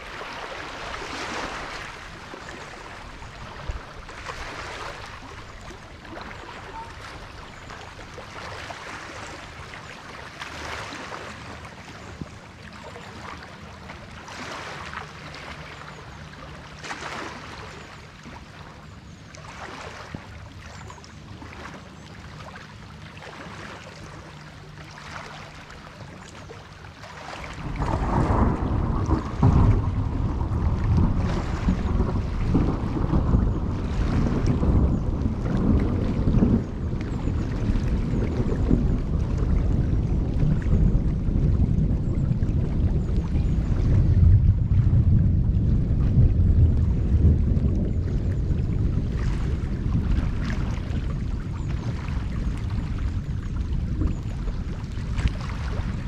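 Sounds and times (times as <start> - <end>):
thunder rumble: 27.5 - 56.0
rain and wind hiss: 27.6 - 42.0.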